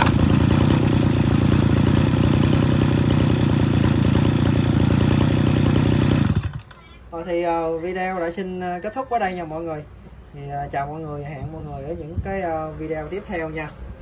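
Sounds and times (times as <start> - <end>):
brush cutter engine running: 0.0 - 6.7.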